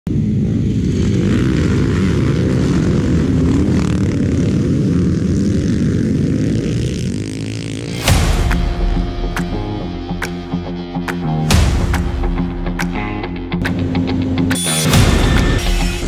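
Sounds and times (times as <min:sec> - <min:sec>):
sharp hit: 0:07.8 - 0:16.0.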